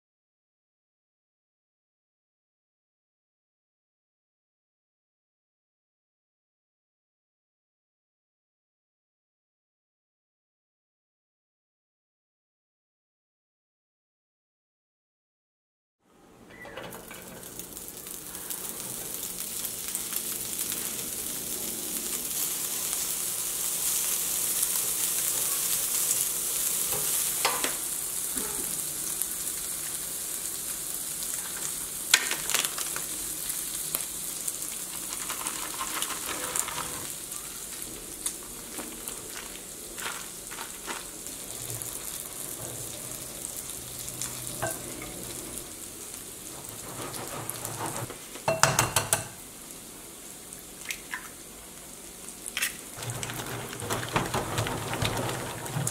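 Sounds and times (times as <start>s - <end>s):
pork sizzling in a skillet: 17.3s - 55.0s.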